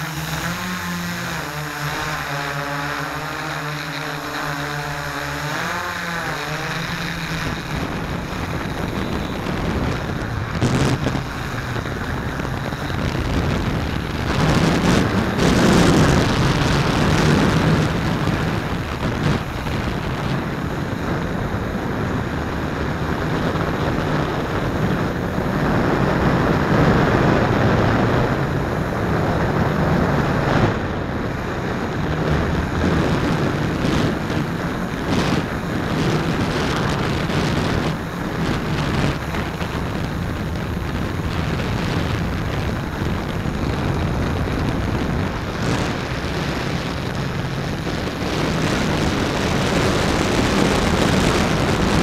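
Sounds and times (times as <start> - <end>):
drone motors whining: 0.0 - 21.2
wind rushing on microphone: 0.0 - 52.0.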